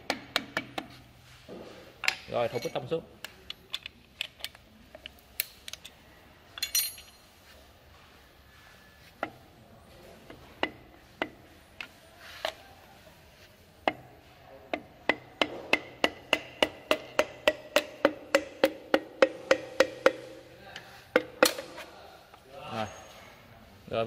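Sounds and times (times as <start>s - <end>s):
hammer handle tapping piston: 14.7s - 20.4s.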